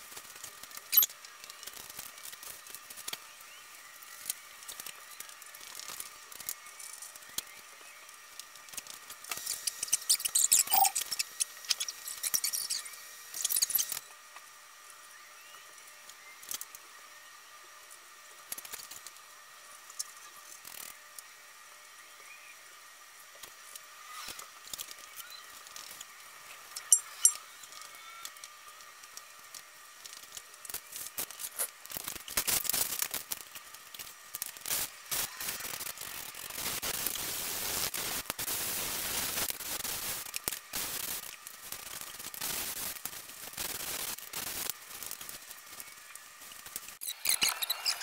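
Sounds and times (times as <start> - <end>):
spray can hissing: 9.4 - 14.0.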